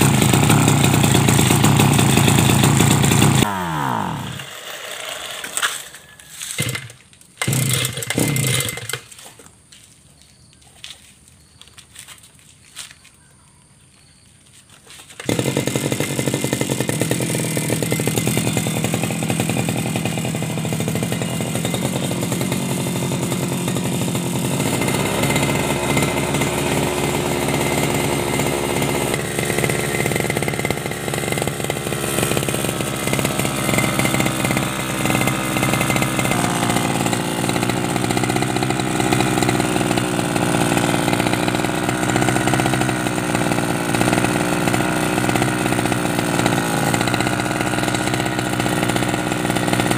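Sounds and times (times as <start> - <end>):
two-stroke brush cutter engine: 0.0 - 9.5, 14.9 - 49.9.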